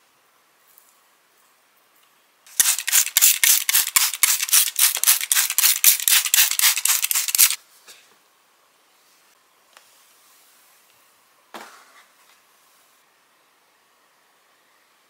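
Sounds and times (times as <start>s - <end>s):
spray bottle squirting: 2.5s - 7.6s.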